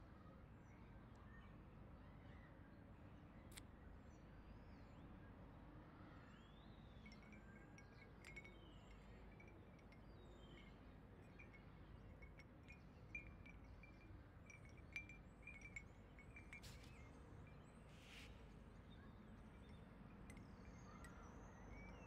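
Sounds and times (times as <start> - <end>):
wind chime clinks: 7.0 - 17.8, 19.3 - 22.0.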